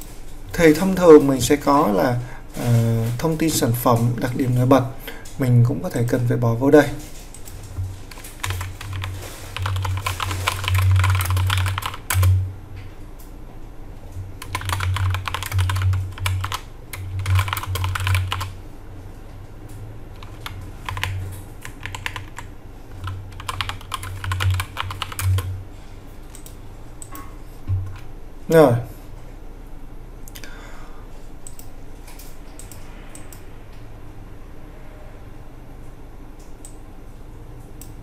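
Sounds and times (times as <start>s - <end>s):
typing on computer keyboard: 8.1s - 12.4s, 14.4s - 18.6s, 20.1s - 25.5s.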